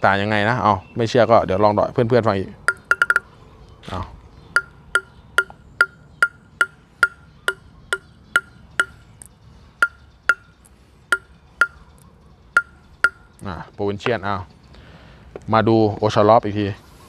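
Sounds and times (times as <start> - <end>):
ball bouncing on table tennis bat: 2.7 - 3.2, 4.6 - 9.0.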